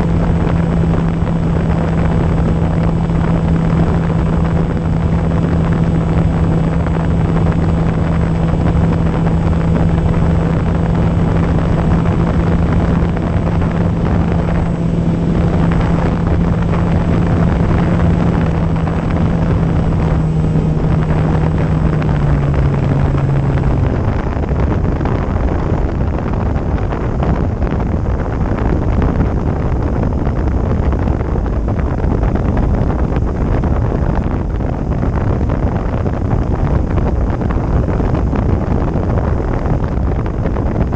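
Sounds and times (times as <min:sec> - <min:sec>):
electric motor and propeller hum: 0:00.0 - 0:25.3
wind rushing over microphone: 0:00.0 - 0:40.9.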